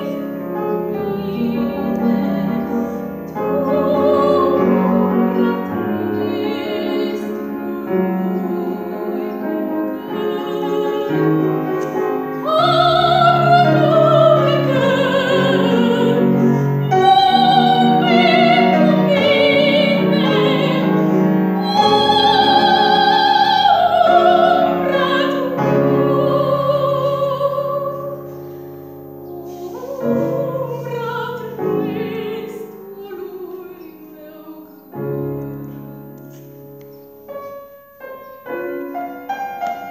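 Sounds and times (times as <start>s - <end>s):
woman singing operatic style: 0.0s - 28.4s, 29.4s - 36.1s
piano accompaniment: 0.0s - 39.9s.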